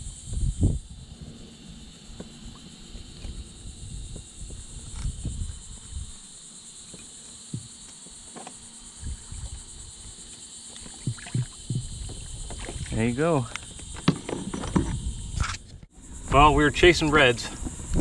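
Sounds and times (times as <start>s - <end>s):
high insect chorus: 0.0s - 18.0s
water splashing and sloshing: 6.9s - 15.1s.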